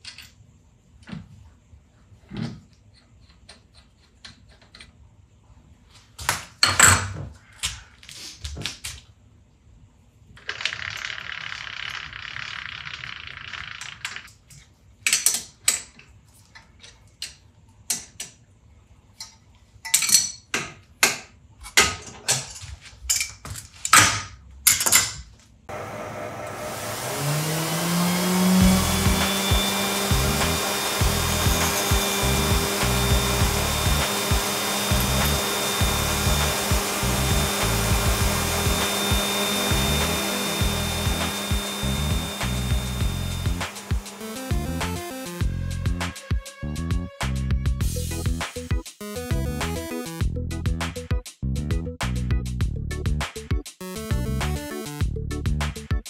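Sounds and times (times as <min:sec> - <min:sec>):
grinder motor running with hiss: 0:25.7 - 0:46.3
background music: 0:27.3 - 0:56.0.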